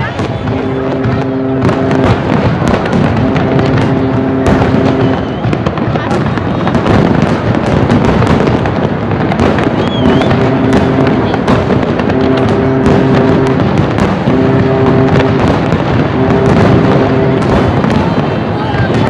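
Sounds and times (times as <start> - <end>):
fireworks bangs and crackling: 0.0 - 19.0.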